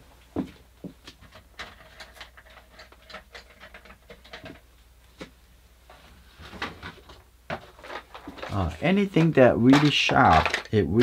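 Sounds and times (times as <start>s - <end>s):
small tools clicking: 8.4s - 11.0s.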